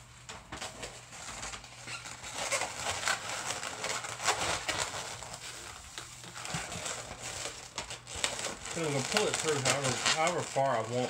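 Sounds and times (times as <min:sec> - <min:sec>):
balloons squeaking and rubbing: 0:00.0 - 0:11.0.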